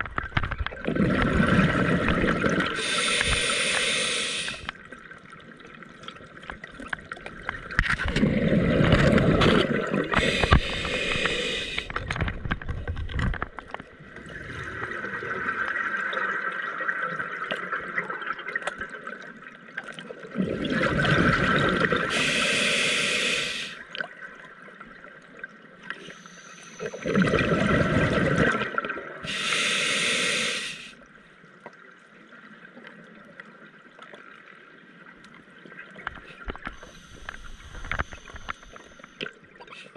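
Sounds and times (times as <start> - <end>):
water noise: 0.0 - 39.9
exhaled bubbles rushing: 0.8 - 3.4, 8.0 - 11.2, 20.3 - 22.1, 26.9 - 29.2
diver breathing through regulator: 2.5 - 4.7, 10.1 - 12.0, 22.0 - 23.8, 29.2 - 31.0, 36.7 - 39.2.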